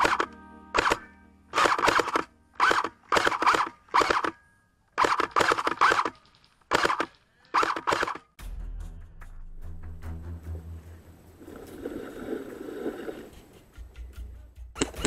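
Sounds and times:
airsoft rifle full-auto bursts: 0.0s - 4.4s, 5.0s - 8.3s.

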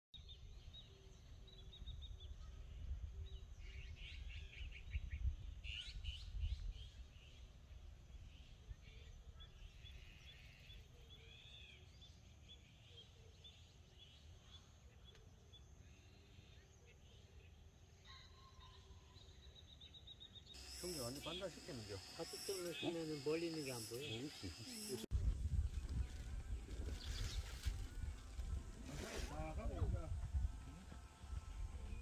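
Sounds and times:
wild birds chirping: 0.3s - 25.1s.

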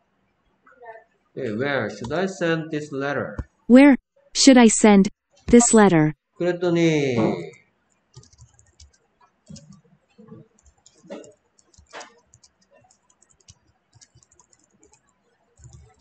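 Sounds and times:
typing on keyboard: 8.2s - 9.8s, 10.5s - 16.0s.

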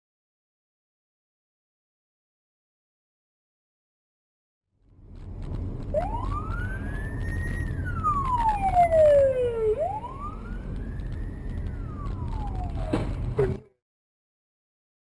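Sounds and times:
road noise: 4.8s - 13.8s
police siren wailing: 5.9s - 13.4s.

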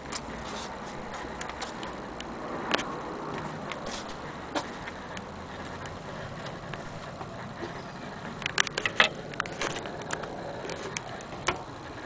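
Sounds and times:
background noise: 0.0s - 12.0s
wooden clock case clicks and knocks: 8.5s - 10.0s.

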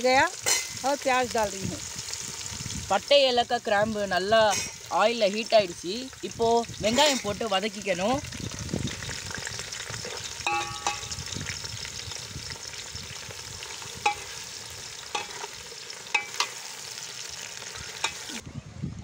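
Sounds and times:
onions sizzling in hot oil: 0.0s - 18.4s
ladle clinking against pot: 10.4s - 11.1s, 16.1s - 16.6s.

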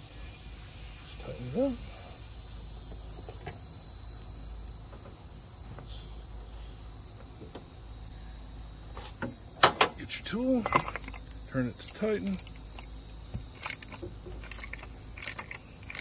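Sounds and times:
insects buzzing: 0.0s - 16.0s
metal tool clattering: 10.6s - 11.2s.

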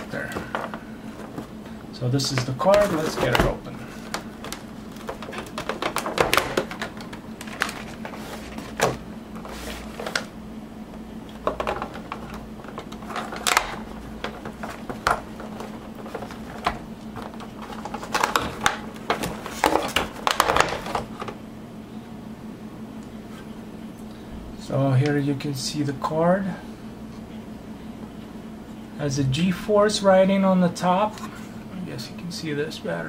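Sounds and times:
plastic packaging crackling and snapping: 0.0s - 10.3s, 11.2s - 21.4s.

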